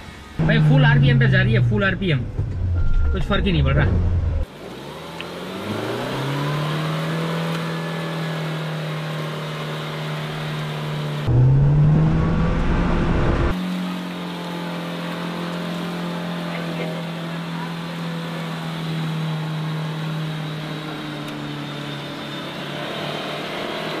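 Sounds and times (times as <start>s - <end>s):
engine at full revs: 0.0s - 24.0s
heavy low rumble: 0.4s - 4.5s, 11.3s - 13.6s.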